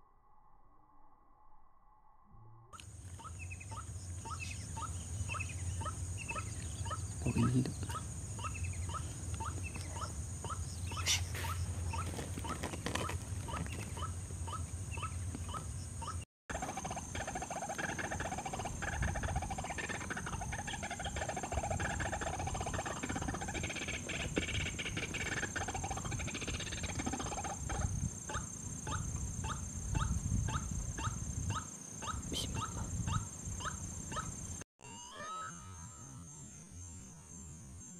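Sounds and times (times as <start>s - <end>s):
waterhens calling: 3.0s - 34.3s
high-pitched whine: 34.8s - 37.9s.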